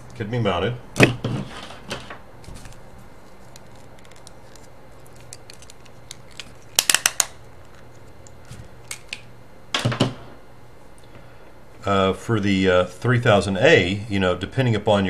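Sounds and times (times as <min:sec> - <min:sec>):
sharp plastic clicks: 0:05.3 - 0:07.4.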